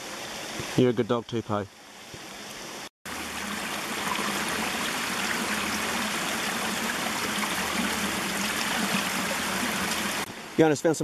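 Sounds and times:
stream babbling over stones: 0:03.1 - 0:11.0.

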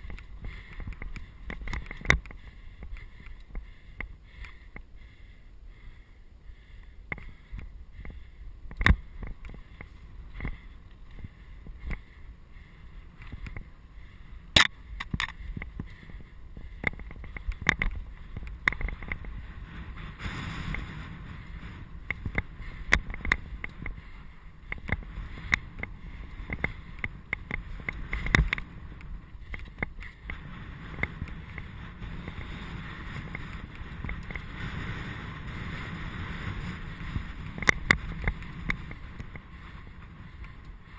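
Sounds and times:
bike rattling and knocking: 0:00.0 - 0:04.8, 0:14.5 - 0:40.9
bike tyres on gravel: 0:00.0 - 0:40.9.

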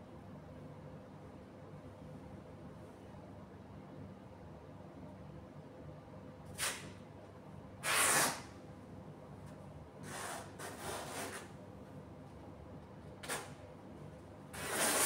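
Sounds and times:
brief scrape: 0:07.8 - 0:08.5, 0:10.0 - 0:11.5, 0:14.6 - 0:15.0.

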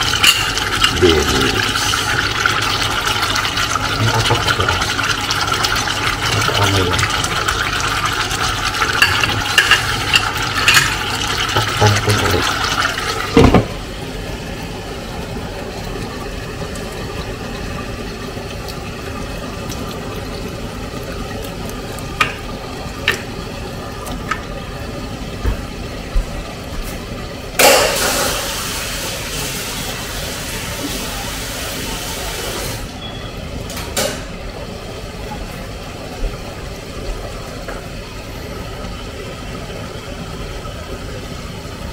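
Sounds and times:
sauce bubbling: 0:00.0 - 0:31.8
covered pan simmering: 0:00.0 - 0:41.9.

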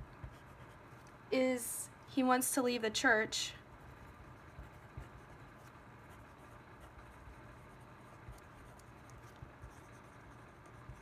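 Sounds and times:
pen scratching on paper: 0:00.2 - 0:01.2, 0:03.8 - 0:11.0.

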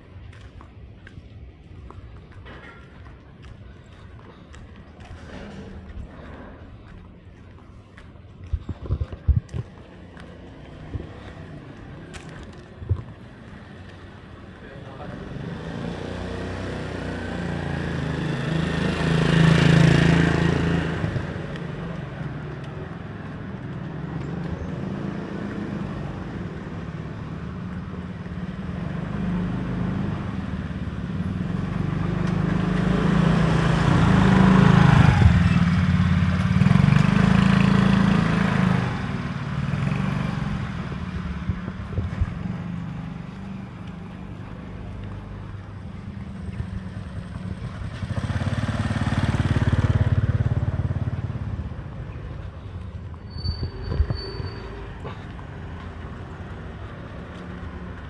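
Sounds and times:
vehicle engines humming: 0:00.0 - 0:58.0
vehicle passing by: 0:14.9 - 0:27.8, 0:28.4 - 0:52.5.

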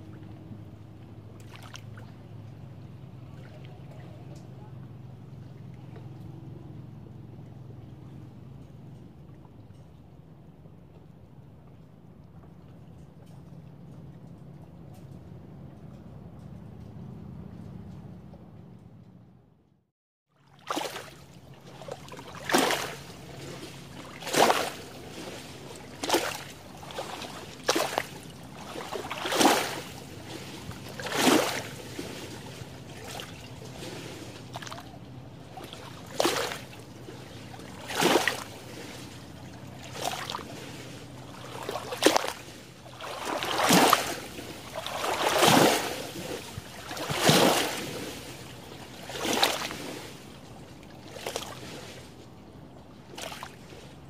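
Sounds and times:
small waves lapping on shore: 0:00.0 - 0:08.2, 0:20.3 - 0:54.0.

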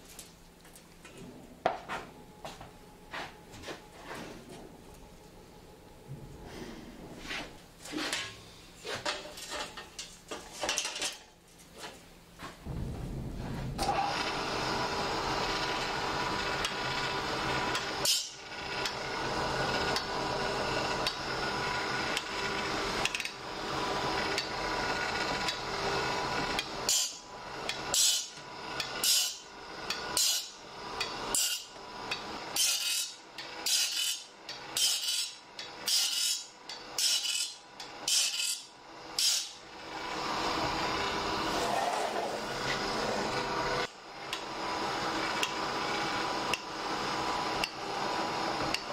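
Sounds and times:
grinding wheel on saw blade: 0:13.9 - 0:48.9.

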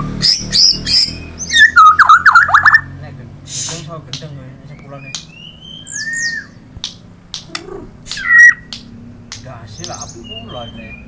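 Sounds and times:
bird singing whistles: 0:00.0 - 0:02.9, 0:04.7 - 0:06.6, 0:08.1 - 0:08.7, 0:09.8 - 0:11.0
bird clicking chips: 0:06.8 - 0:10.2.

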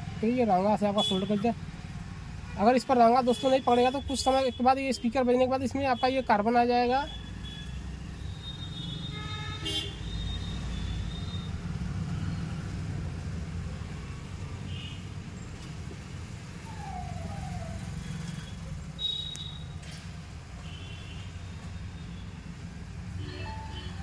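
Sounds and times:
low traffic rumble: 0:00.0 - 0:24.0
vehicle horn toots: 0:08.5 - 0:10.4.

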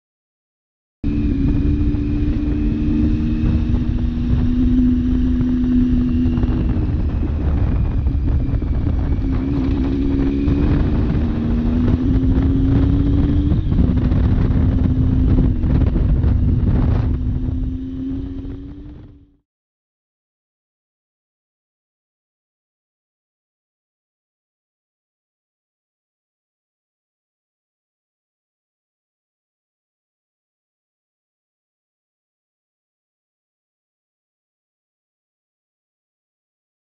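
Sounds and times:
motorcycle engine running: 0:01.0 - 0:19.4
wind rushing on microphone: 0:01.1 - 0:19.4.

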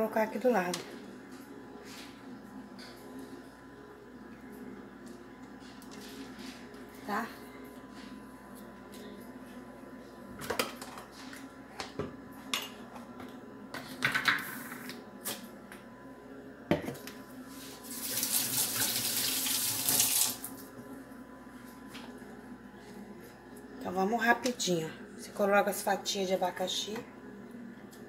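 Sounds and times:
kitchen tap running: 0:17.9 - 0:20.6.

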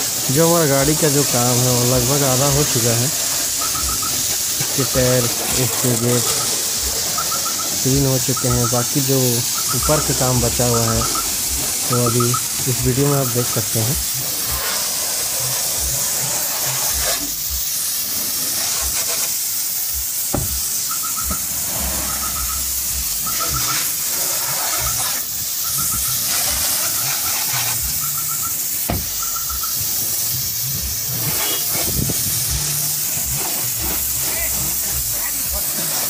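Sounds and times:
water hissing from a hose: 0:00.0 - 0:36.0
short high chirping: 0:03.4 - 0:13.8, 0:20.8 - 0:24.0, 0:24.7 - 0:30.0.

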